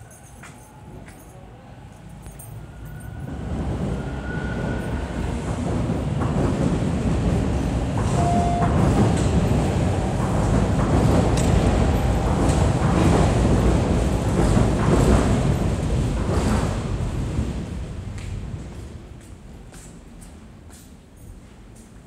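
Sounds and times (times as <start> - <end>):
subway train rumble: 0.0 - 22.0
train wheel squeals: 2.4 - 5.4, 8.1 - 8.9.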